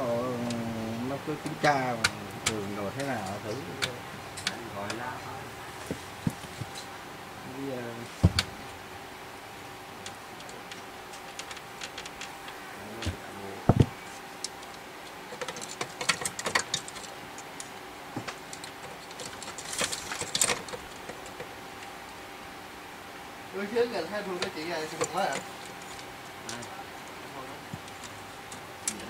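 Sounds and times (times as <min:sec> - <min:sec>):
faint steady hum: 0:00.0 - 0:29.0
plastic and metal parts clicking: 0:14.5 - 0:21.5.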